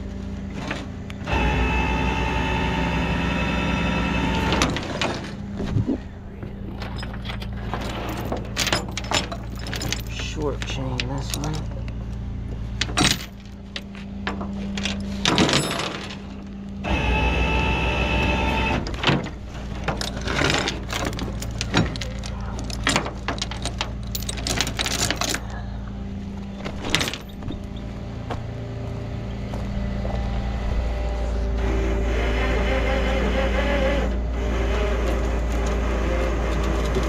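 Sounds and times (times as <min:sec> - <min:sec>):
mechanical hum with whine: 0:00.0 - 0:37.0
truck engine humming: 0:00.0 - 0:37.0
tow chain clinking and rattling: 0:04.6 - 0:16.6, 0:19.1 - 0:28.1, 0:35.6 - 0:37.0.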